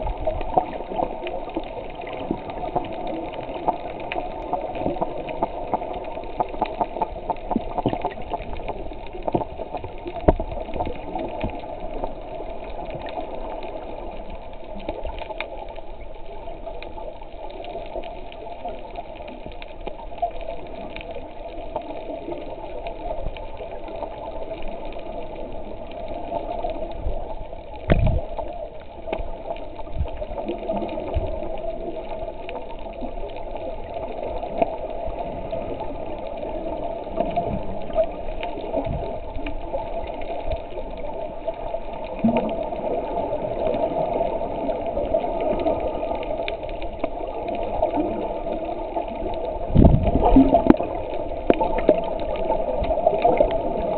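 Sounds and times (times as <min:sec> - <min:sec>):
crackle: 0:00.0 - 0:53.9
underwater hum: 0:00.0 - 0:53.9
dull low thumps: 0:27.9 - 0:28.2.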